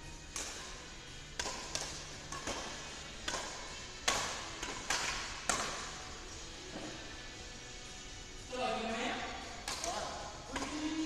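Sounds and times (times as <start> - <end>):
rackets hitting shuttlecock: 0.3 - 6.9, 9.6 - 11.0.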